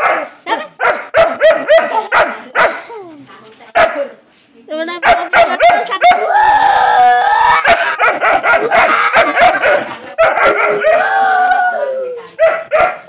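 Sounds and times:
dog yipping and barking: 0.0s - 2.8s, 5.0s - 6.3s, 7.6s - 11.0s, 12.3s - 13.0s.

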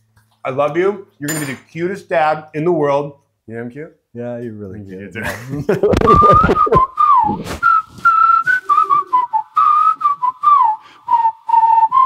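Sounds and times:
person whistling a tune: 6.0s - 12.0s.

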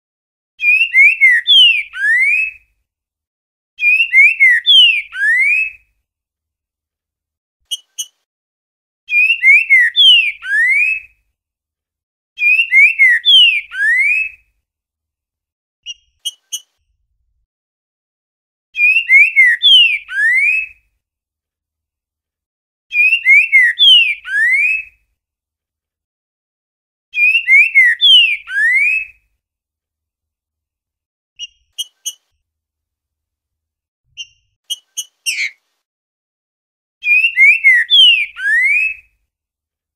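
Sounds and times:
bird singing whistled phrase: 0.6s - 2.6s, 3.8s - 5.8s, 9.1s - 11.1s, 12.4s - 14.4s, 18.8s - 20.8s, 22.9s - 24.9s, 27.2s - 29.2s, 37.0s - 39.0s.

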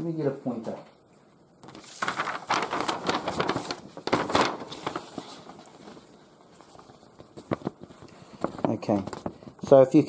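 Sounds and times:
rustling and crackling: 1.6s - 10.0s.

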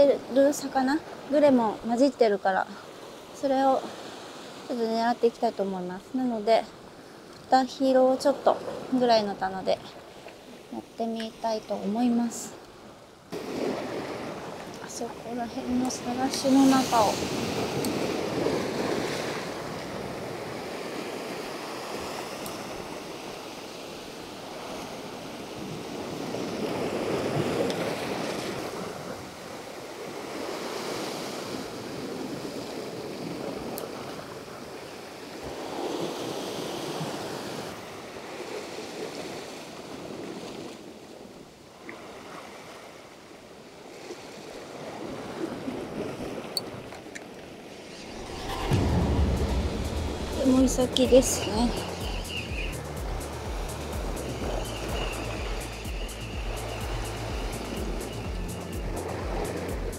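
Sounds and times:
sea waves washing on rocks: 13.3s - 43.0s, 43.9s - 59.9s.

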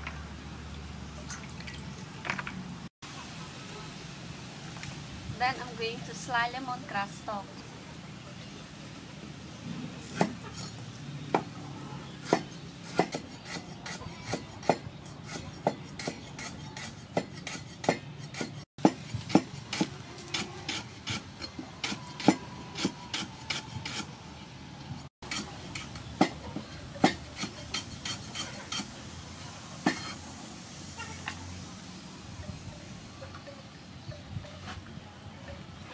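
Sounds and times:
knife slicing lemongrass: 25.2s - 26.4s.

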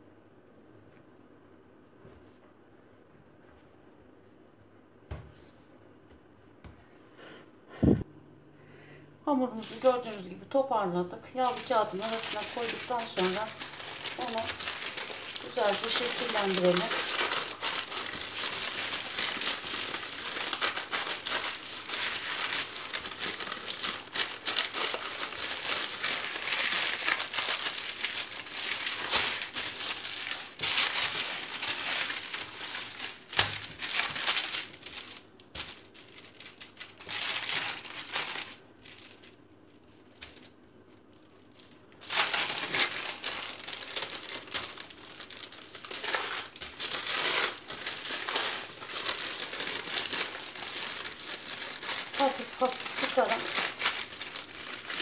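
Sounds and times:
parchment paper crinkling: 9.5s - 55.0s.

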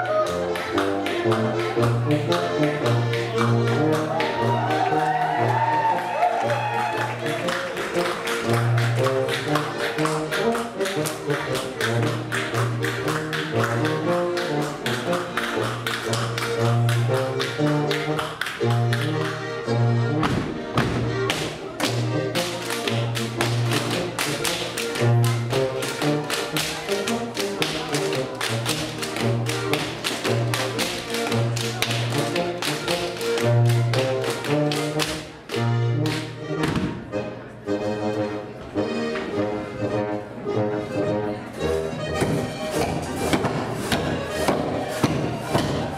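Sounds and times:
brass band dance music: 0.0s - 45.9s
dancers slapping and clapping: 0.3s - 19.4s, 20.2s - 36.9s, 42.2s - 45.9s
feet stamping: 20.2s - 21.6s, 42.1s - 45.9s.

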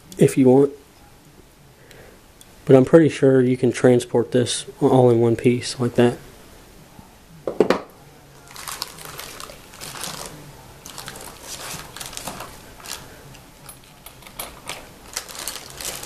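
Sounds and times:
plastic wrapping crinkling: 8.4s - 16.0s.

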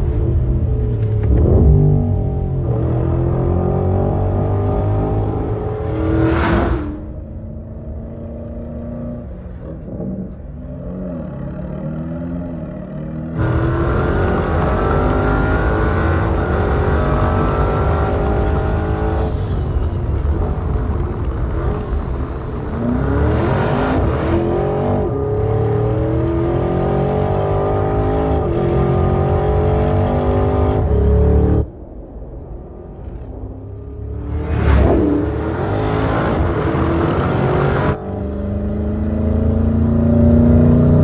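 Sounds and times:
car engine accelerating hard: 13.3s - 31.7s, 34.0s - 41.0s.

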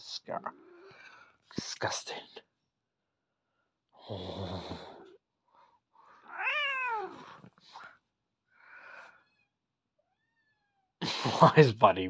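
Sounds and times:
cat meowing: 6.2s - 7.4s, 9.2s - 11.0s.

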